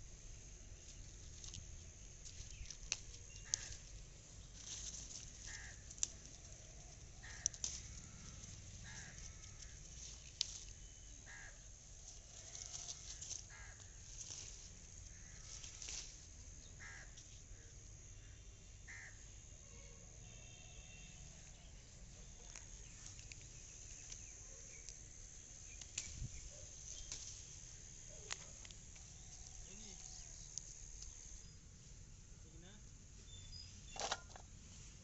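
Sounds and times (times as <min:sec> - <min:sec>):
high insect drone: 0:00.0 - 0:33.9
leaves rustling and clicking: 0:00.1 - 0:17.6, 0:21.3 - 0:35.0
crows cawing: 0:03.3 - 0:04.0, 0:04.7 - 0:10.6, 0:11.2 - 0:16.0, 0:16.7 - 0:17.2, 0:18.9 - 0:19.3.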